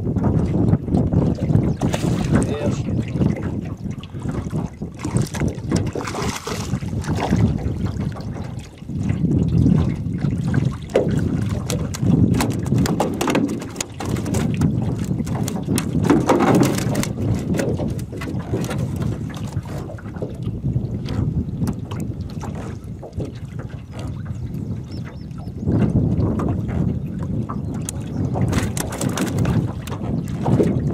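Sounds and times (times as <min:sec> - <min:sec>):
water lapping at a metal boat: 0:00.0 - 0:30.9
wind rumbling on microphone: 0:00.0 - 0:30.9
sharp knocks and clicks: 0:10.9 - 0:19.0, 0:27.8 - 0:30.1.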